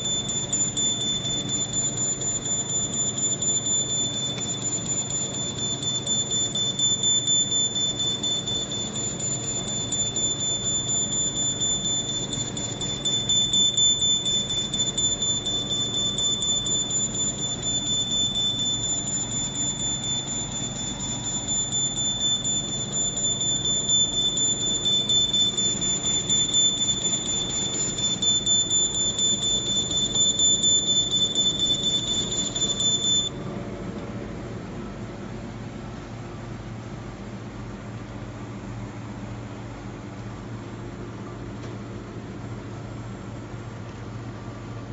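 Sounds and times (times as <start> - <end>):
laser machine whine and ticking: 0.0 - 35.8.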